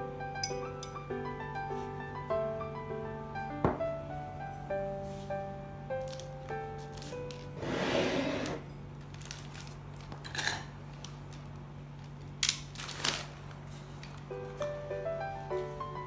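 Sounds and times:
newspaper rustling and crackling: 6.0 - 7.6, 9.0 - 10.2, 10.9 - 14.3.

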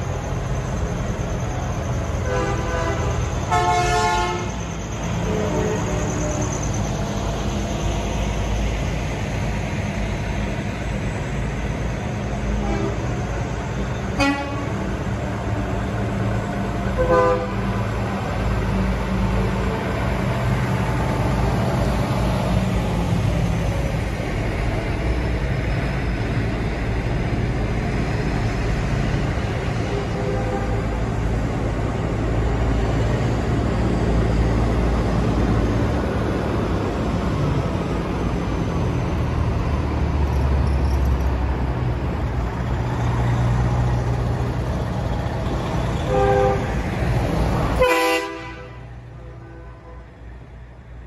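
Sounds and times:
trucks passing diesel rumble: 0.0 - 51.0
air horn toots: 2.2 - 4.5, 14.2 - 14.7, 17.0 - 17.6, 47.8 - 50.1.

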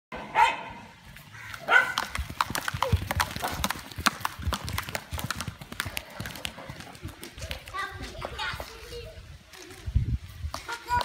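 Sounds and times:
sticks tapping bicycle tyres: 1.5 - 7.7.

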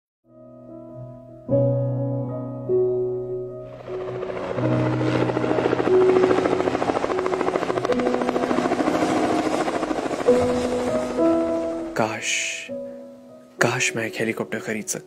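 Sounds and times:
soft piano music: 0.2 - 15.0
helicopter rotor chopping: 3.7 - 12.0.

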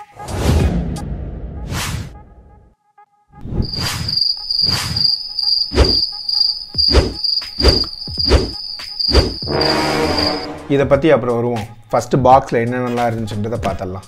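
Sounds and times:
crickets chirping: 3.6 - 10.6.

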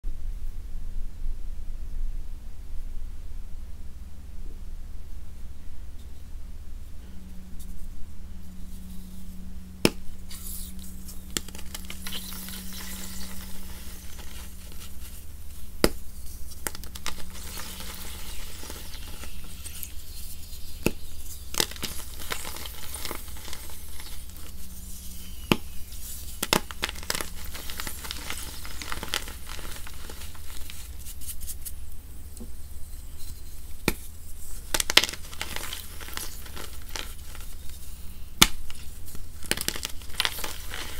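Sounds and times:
chalk blocks cracking: 9.8 - 31.8, 33.8 - 40.9
wet chalk crumbling: 9.8 - 31.8, 33.2 - 40.9.

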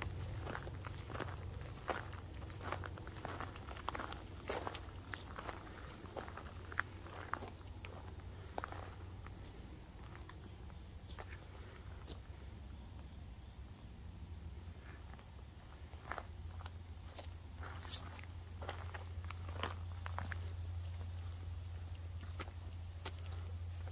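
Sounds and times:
footsteps: 0.0 - 10.4, 16.0 - 21.2
insects chirping: 0.0 - 23.9.

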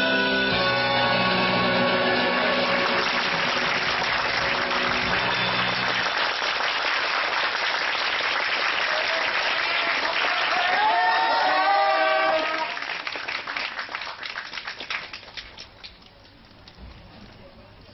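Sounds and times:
backing music: 0.0 - 6.2
audience applauding: 1.9 - 16.0.

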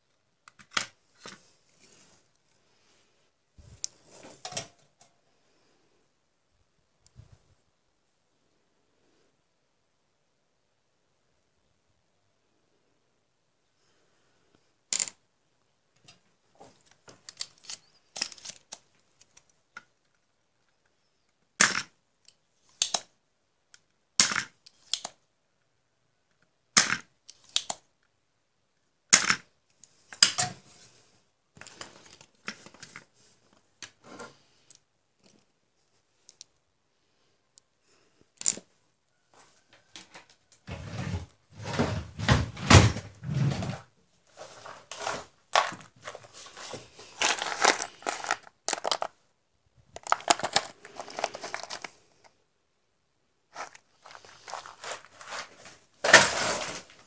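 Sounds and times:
components clattering in a box: 44.5 - 49.2, 50.0 - 51.9, 53.5 - 57.0.

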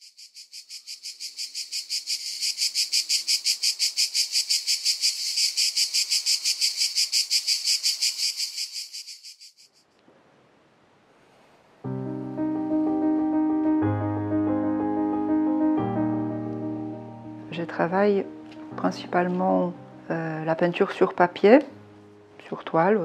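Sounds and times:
high-pitched insect chirping: 0.0 - 9.8
faint hiss: 9.9 - 11.9.

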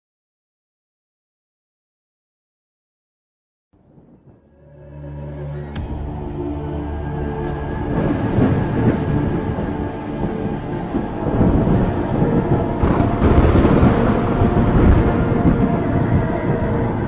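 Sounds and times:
deep rolling rumble: 3.8 - 17.0.

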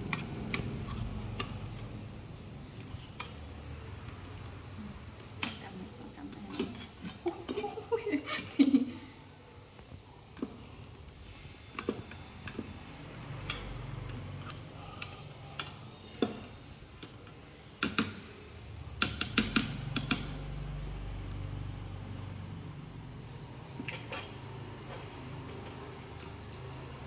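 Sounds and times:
metal spoon scraping metal pot: 6.3 - 7.6, 23.7 - 26.8.

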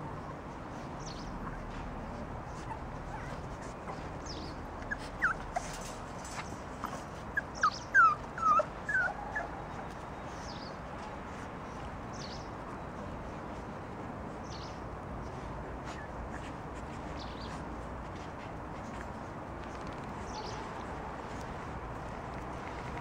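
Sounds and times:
puppies whimpering and yipping: 0.1 - 10.5.

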